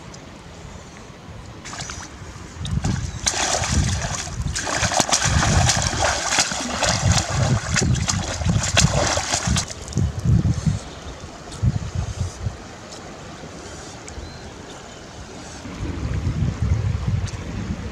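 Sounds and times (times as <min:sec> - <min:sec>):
splashing in shallow water: 0:01.5 - 0:15.8.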